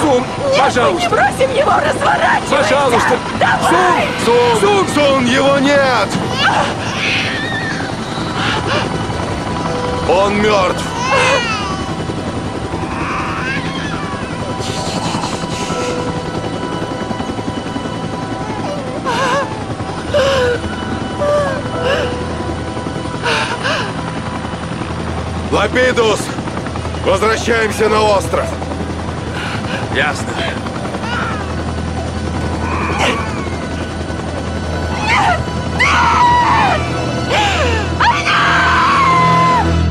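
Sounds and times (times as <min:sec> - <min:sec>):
helicopter engine and rotor drone: 0:00.0 - 0:39.9
woman sobbing: 0:00.3 - 0:04.5, 0:06.3 - 0:09.8, 0:10.9 - 0:17.3, 0:18.1 - 0:24.5, 0:32.5 - 0:39.8
woman screaming and wailing: 0:00.3 - 0:04.7, 0:06.3 - 0:09.1, 0:10.6 - 0:12.0, 0:18.3 - 0:22.4, 0:31.0 - 0:31.6, 0:32.6 - 0:34.1, 0:34.8 - 0:39.9.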